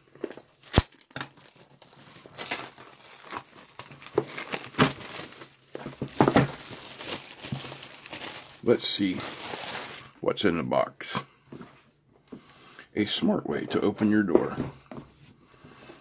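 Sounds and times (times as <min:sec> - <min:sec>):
plastic shrink-wrap crinkling: 0:00.0 - 0:10.2.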